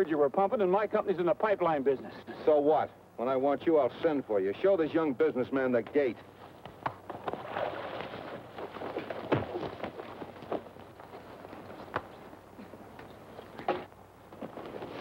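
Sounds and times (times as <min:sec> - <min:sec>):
shuffling and grappling: 0:06.2 - 0:15.0.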